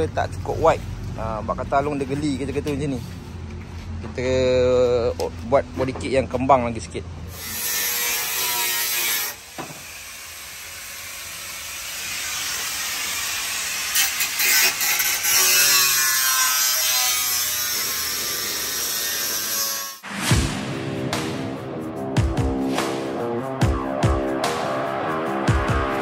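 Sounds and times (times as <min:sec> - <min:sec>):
power tool cutting sheet metal: 0:07.3 - 0:20.1.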